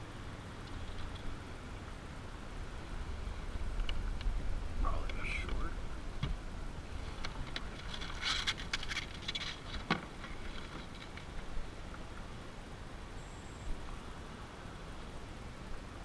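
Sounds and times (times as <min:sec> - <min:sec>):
low steady rumble: 0:00.0 - 0:16.0
rustling and light tapping: 0:00.6 - 0:01.4, 0:07.0 - 0:12.3.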